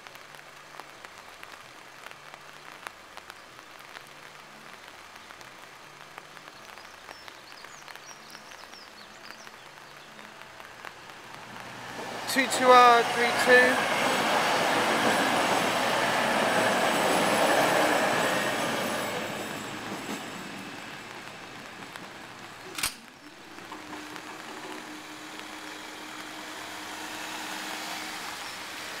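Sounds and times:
diesel train running past: 11.2s - 29.0s
sharp click: 22.7s - 23.1s.

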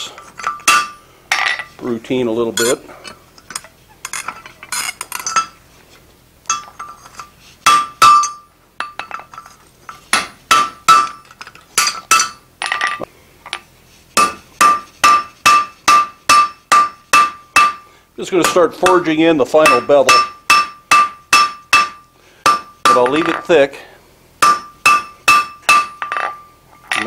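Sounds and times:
hammer striking ringing anvil: 14.2s - 17.8s, 18.4s - 23.5s, 24.4s - 26.5s.

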